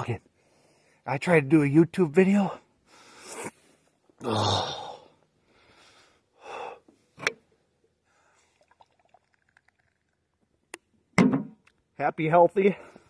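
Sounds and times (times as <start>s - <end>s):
man sighing and breathing heavily: 2.6s - 7.2s
man gulping drink: 8.4s - 10.6s.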